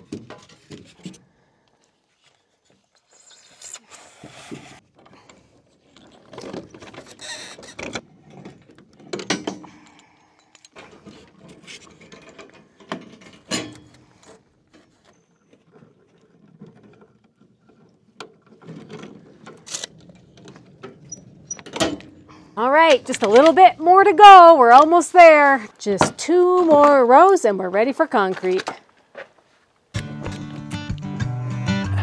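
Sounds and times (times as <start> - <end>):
wire scraping and rattling on rebar: 2.7 - 5.1, 5.8 - 27.3.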